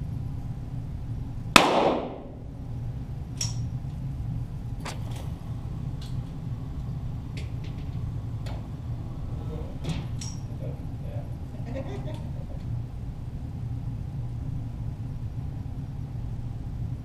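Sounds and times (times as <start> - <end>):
steady low hum: 0.0 - 17.0
pistol shot with echo: 1.6 - 2.4.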